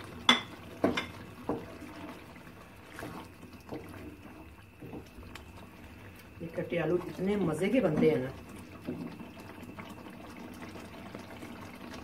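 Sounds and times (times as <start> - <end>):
wet sloppy stirring: 0.0 - 12.0
spatula knocking and scraping pot: 0.2 - 1.8.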